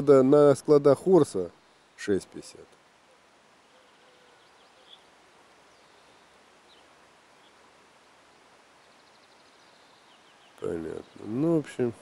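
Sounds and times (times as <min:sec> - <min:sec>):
faint rural ambience: 0:00.0 - 0:12.0
faint high chirps: 0:03.1 - 0:11.4.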